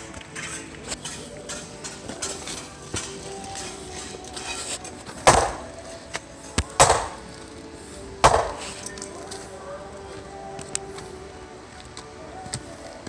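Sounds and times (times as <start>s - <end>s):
hammer striking wooden board: 5.3s - 5.7s, 6.8s - 7.2s, 8.2s - 8.6s.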